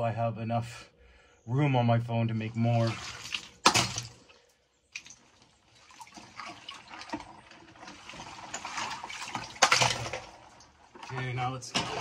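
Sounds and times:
water sloshing: 0:02.3 - 0:12.0.

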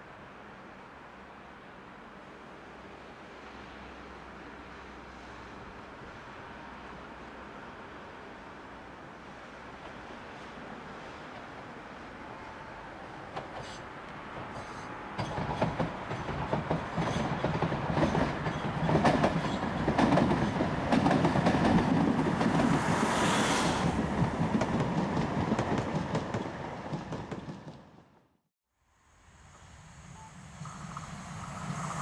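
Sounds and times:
tram passing: 0:00.1 - 0:28.3, 0:29.1 - 0:32.0
wheels clicking over rail joints: 0:13.3 - 0:22.8
high hiss: 0:28.8 - 0:32.0.

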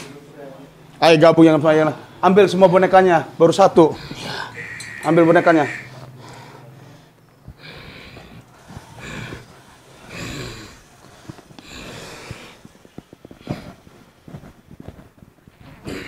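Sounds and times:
person breathing hard: 0:03.9 - 0:15.0.

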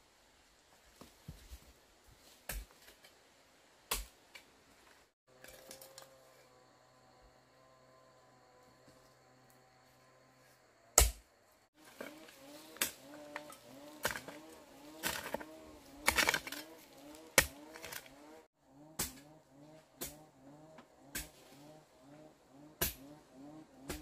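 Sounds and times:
hoe striking ground: 0:11.0 - 0:23.2, 0:23.8 - 0:24.0.

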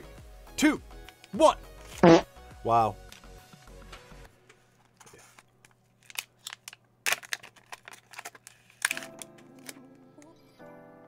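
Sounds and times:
foil pouch crinkling: 0:05.6 - 0:09.8.

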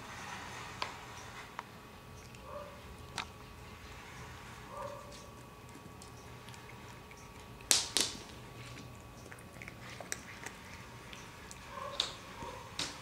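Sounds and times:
faint chewing clicks: 0:01.6 - 0:03.5, 0:04.9 - 0:13.0
cat crunching dry treats: 0:04.6 - 0:13.0.

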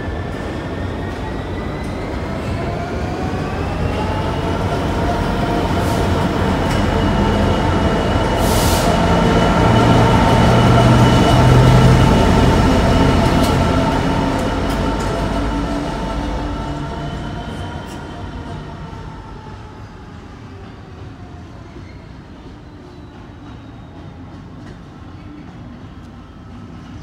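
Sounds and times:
diesel locomotive engine passing: 0:00.0 - 0:27.0.

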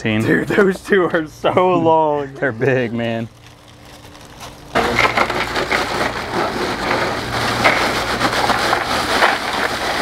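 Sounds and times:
ice cubes pouring into a cooler: 0:03.5 - 0:10.0.

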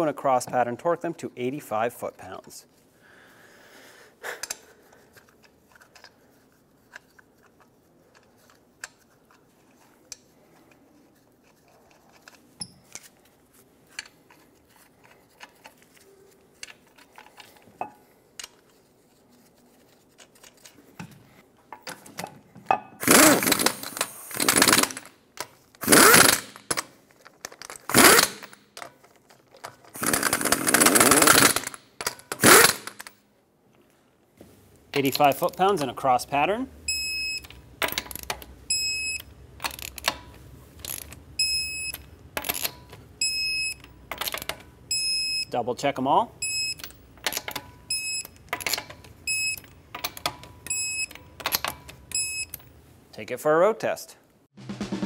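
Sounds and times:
impact wrench bursts: 0:23.0 - 0:25.1, 0:25.8 - 0:26.8, 0:27.9 - 0:28.6, 0:30.0 - 0:33.1.

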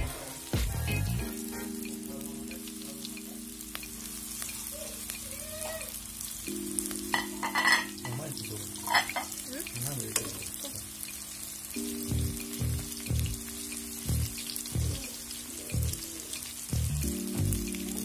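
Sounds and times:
food sizzling in hot oil: 0:00.0 - 0:18.0
utensil clicking against pan: 0:08.9 - 0:10.4, 0:11.0 - 0:11.8
low hum: 0:11.8 - 0:15.0.

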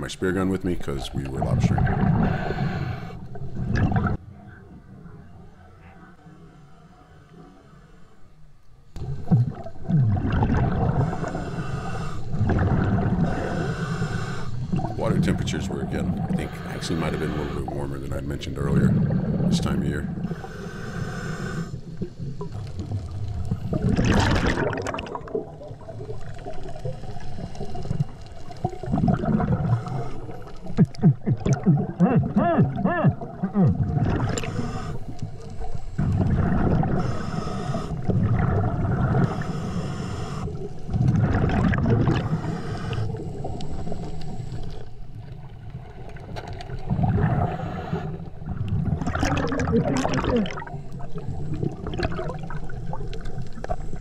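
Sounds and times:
bubbles gurgling underwater: 0:00.7 - 0:02.5, 0:03.3 - 0:04.2, 0:09.0 - 0:11.5, 0:12.3 - 0:13.6, 0:22.0 - 0:34.9, 0:36.0 - 0:37.2, 0:38.0 - 0:39.5, 0:40.9 - 0:42.5, 0:45.4 - 0:47.7, 0:48.3 - 0:54.0
diver breathing through regulator: 0:02.0 - 0:03.5, 0:10.8 - 0:22.9, 0:27.0 - 0:45.0, 0:46.9 - 0:48.6.

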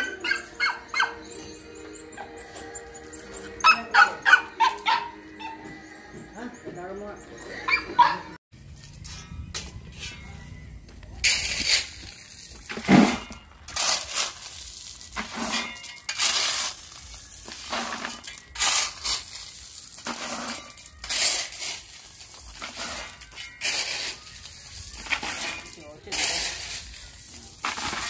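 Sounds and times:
shovel scraping into gravel: 0:11.2 - 0:28.0
stones rattling into plastic bucket: 0:11.2 - 0:28.0.

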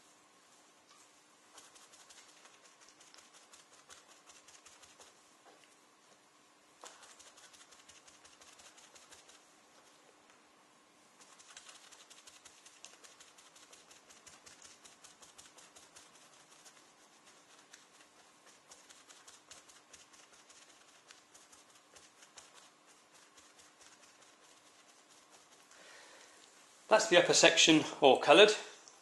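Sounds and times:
dabbing on leather: 0:01.5 - 0:05.6, 0:06.2 - 0:10.0, 0:11.1 - 0:25.7.

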